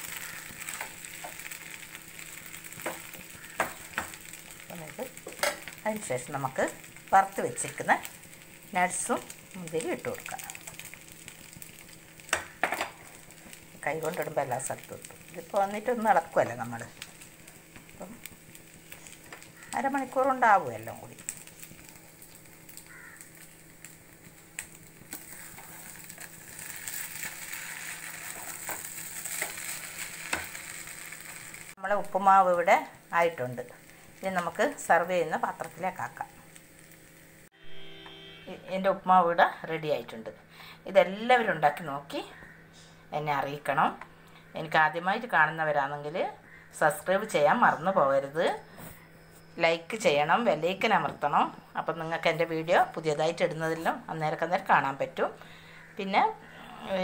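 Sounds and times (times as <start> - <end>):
spatula stirring in a pan: 0.0 - 5.8, 24.6 - 31.7
faint sizzle: 0.0 - 57.0
spatula scraping a pan: 25.1 - 31.4.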